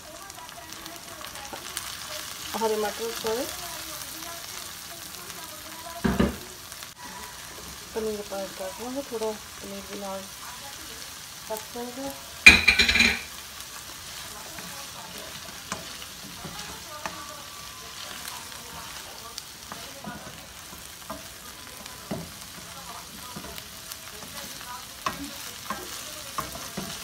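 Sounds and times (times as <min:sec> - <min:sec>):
food sizzling in hot oil: 0:00.0 - 0:27.0
spatula scraping and tapping pan: 0:12.4 - 0:13.4, 0:18.2 - 0:27.0.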